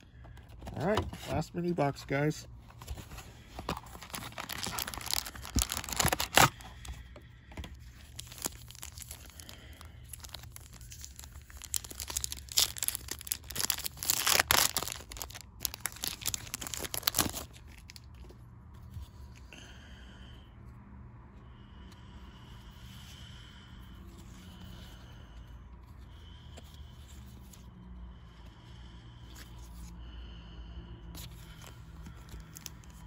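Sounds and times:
foil wrappers crinkling: 3.5 - 6.9, 7.8 - 18.1, 32.2 - 33.0
pack being torn open: 3.7 - 6.7, 8.0 - 18.0.

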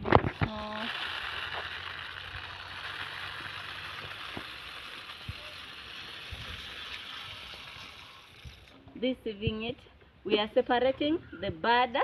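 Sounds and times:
dried beans pouring: 0.0 - 8.9.

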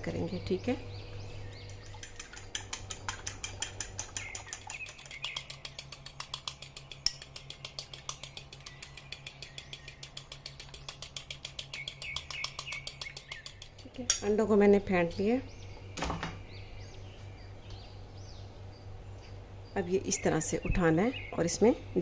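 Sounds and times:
eggs beaten in a bowl: 1.5 - 14.2.

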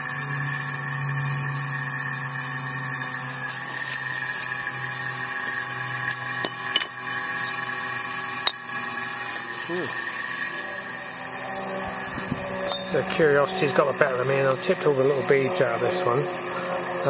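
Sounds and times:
mechanical hum of held tones: 0.0 - 17.0.

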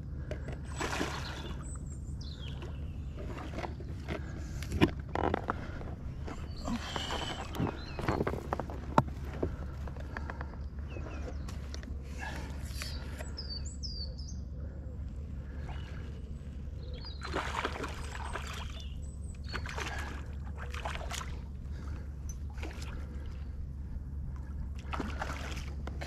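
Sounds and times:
bird chirping: 1.2 - 4.0, 6.1 - 8.7, 10.7 - 14.9, 15.5 - 20.1.

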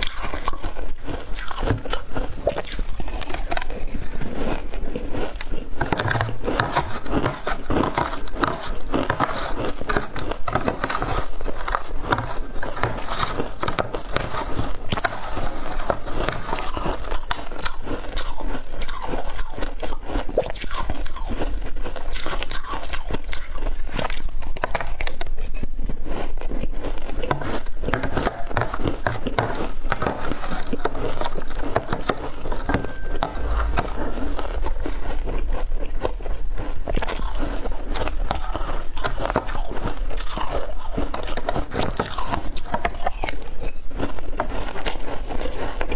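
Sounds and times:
crunching shaved ice: 0.0 - 45.9
metal spoon scraping glass dish: 31.1 - 34.4.

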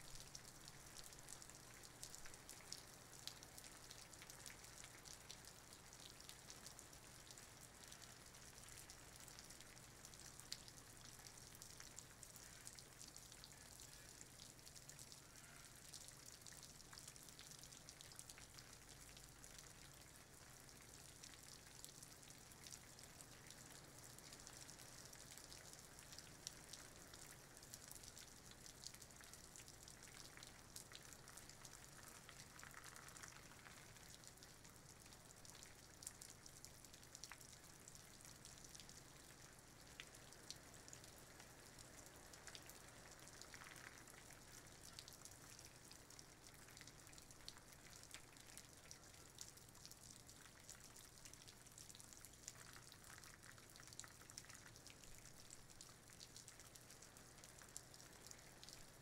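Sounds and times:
light rain on leaves: 0.0 - 59.0
raindrop ticks: 0.0 - 59.0.

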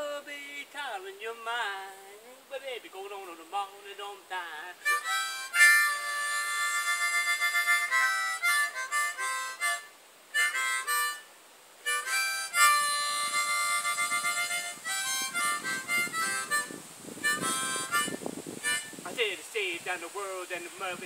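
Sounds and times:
blues harmonica playing: 4.8 - 19.0.

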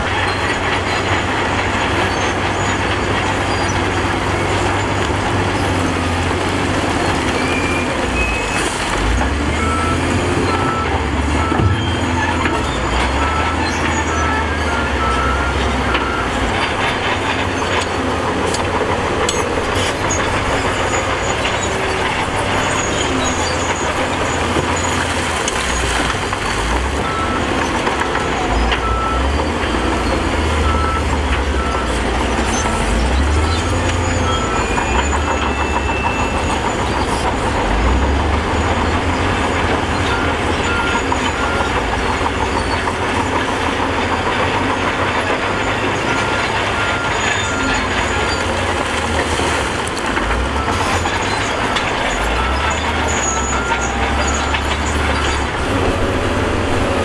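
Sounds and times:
diesel engine rumbling: 0.0 - 57.0
reversing alarm beeps: 7.3 - 16.8, 18.6 - 38.7, 45.0 - 49.7, 50.4 - 57.0.

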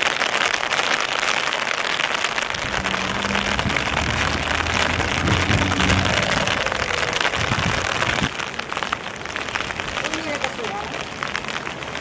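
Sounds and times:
rain hiss: 0.0 - 12.0
low hum: 2.4 - 8.4.

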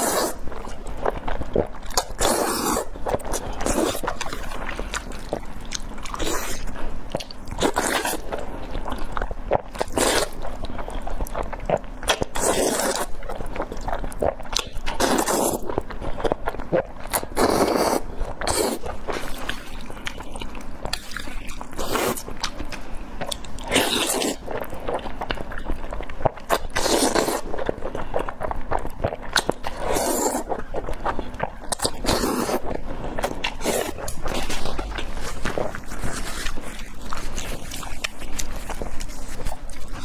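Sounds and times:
noodle slurping: 0.0 - 0.5, 1.6 - 5.5, 11.7 - 13.2, 16.8 - 19.8, 26.5 - 28.2, 29.1 - 40.0
wet chewing and smacking: 0.0 - 40.0.

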